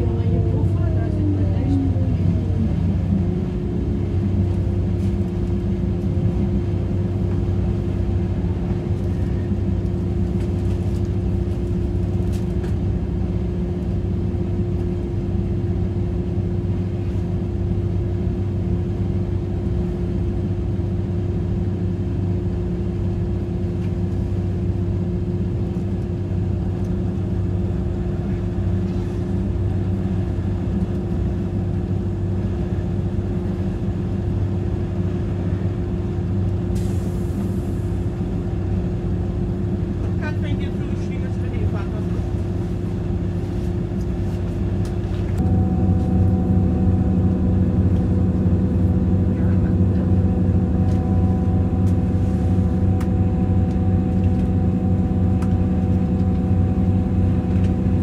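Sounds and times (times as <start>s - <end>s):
steady train hum: 0.0s - 58.0s
train wheels rumbling: 25.5s - 58.0s.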